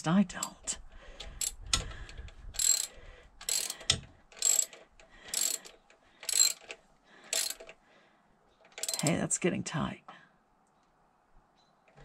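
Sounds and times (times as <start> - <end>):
socket ratchet clicking: 1.2 - 7.8, 8.7 - 9.0.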